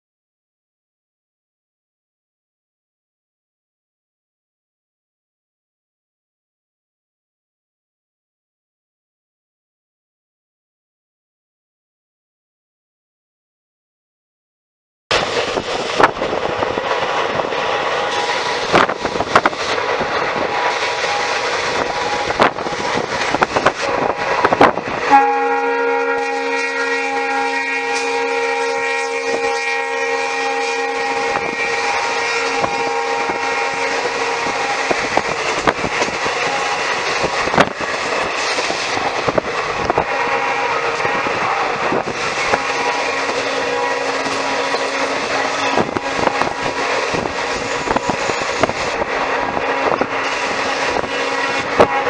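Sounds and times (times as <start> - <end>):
train running at speed: 15.1 - 52.0
locomotive horn blast: 25.0 - 35.2, 39.9 - 48.6, 49.5 - 52.0.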